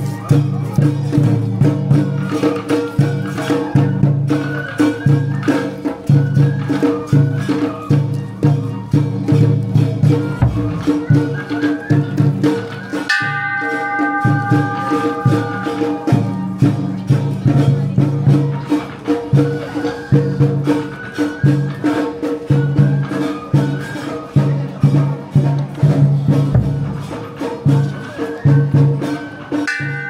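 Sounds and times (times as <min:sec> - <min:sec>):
rattling percussion: 0:00.0 - 0:30.0
high held notes: 0:10.2 - 0:17.5.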